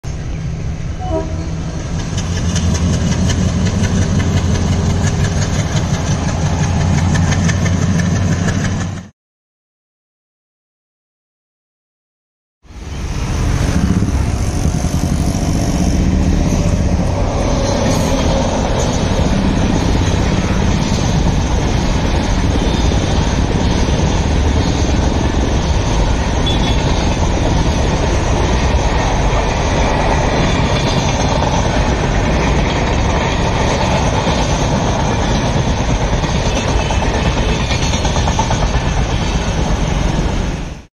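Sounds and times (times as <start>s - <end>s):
train wheels rumbling on rails: 0.0s - 9.1s, 12.7s - 40.9s.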